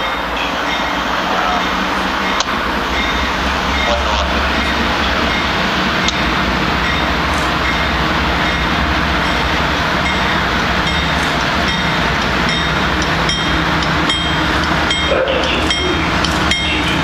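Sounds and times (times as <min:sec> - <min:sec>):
diesel freight train approaching: 0:00.0 - 0:17.0.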